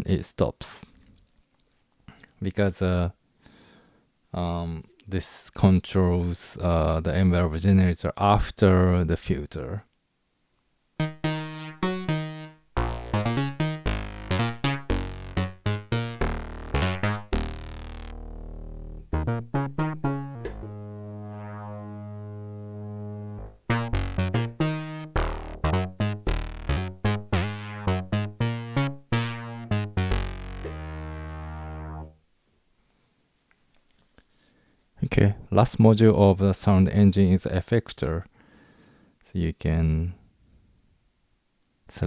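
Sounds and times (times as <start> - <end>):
synthesizer plucked notes: 11.0 - 32.2.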